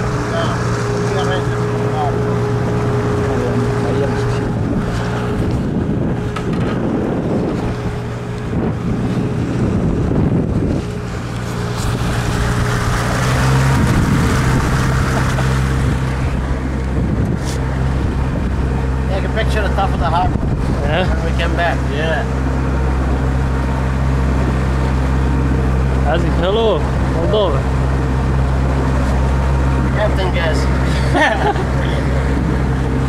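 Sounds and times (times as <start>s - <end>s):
motorboat engine running: 0.0s - 33.0s
water rushing past hull: 0.0s - 33.0s
wind buffeting microphone: 0.0s - 33.0s.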